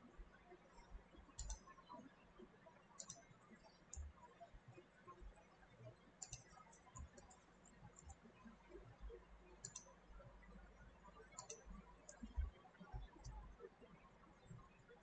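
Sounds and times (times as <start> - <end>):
mouse and keyboard clicks: 1.4 - 1.6, 3.0 - 3.2, 6.2 - 7.4, 9.6 - 9.9, 11.4 - 12.5.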